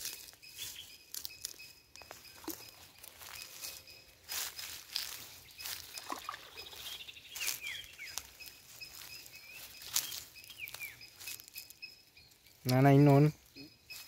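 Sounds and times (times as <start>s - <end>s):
birds chirping: 0.0s - 14.0s
water dripping and splashing: 5.1s - 7.0s.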